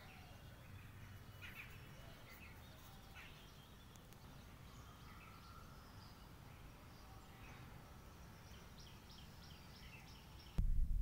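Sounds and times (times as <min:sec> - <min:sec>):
faint bird chirps: 0:00.0 - 0:10.6
low steady rumble: 0:10.6 - 0:11.0.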